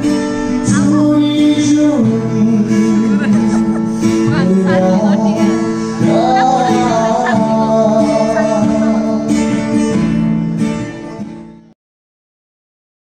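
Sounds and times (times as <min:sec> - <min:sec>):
person singing: 0:00.0 - 0:10.2
acoustic guitar: 0:00.0 - 0:11.8.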